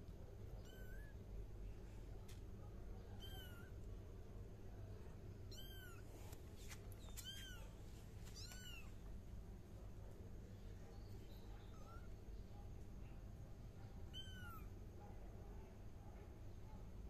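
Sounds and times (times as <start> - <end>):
kittens meowing: 0.6 - 1.2, 3.2 - 3.8, 5.5 - 6.1, 7.0 - 7.8, 8.4 - 9.0, 11.7 - 12.1, 14.1 - 14.7.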